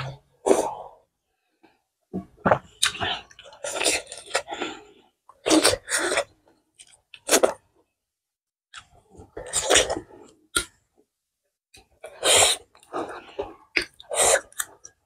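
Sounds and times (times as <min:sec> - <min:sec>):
person slurping food: 0:12.0 - 0:14.8.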